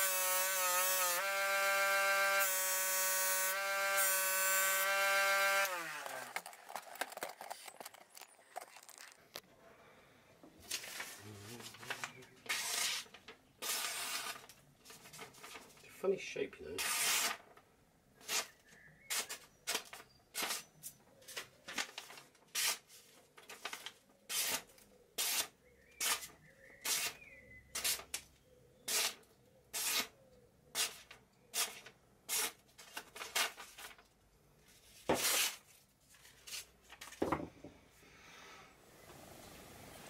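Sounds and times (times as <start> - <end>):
paper tearing by hand: 10.7 - 14.5, 16.8 - 17.4, 18.2 - 20.7, 21.7 - 28.1, 28.9 - 34.0, 35.1 - 35.8.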